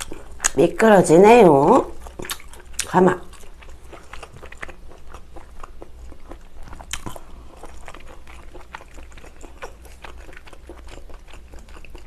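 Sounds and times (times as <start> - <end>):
chewing noodles: 1.9 - 12.0
wet mouth clicks and smacks: 2.2 - 2.9.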